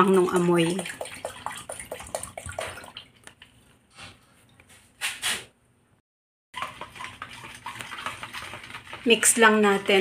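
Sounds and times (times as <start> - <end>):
liquid dripping into bucket: 0.2 - 3.6.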